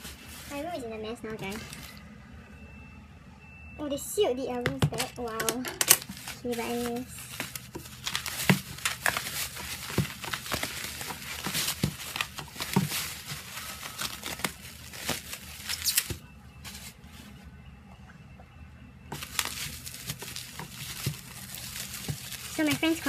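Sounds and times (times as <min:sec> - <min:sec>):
bubble wrap crinkling: 0:00.0 - 0:00.8, 0:05.4 - 0:17.4, 0:19.1 - 0:23.0
sharp crackles: 0:06.3 - 0:16.2.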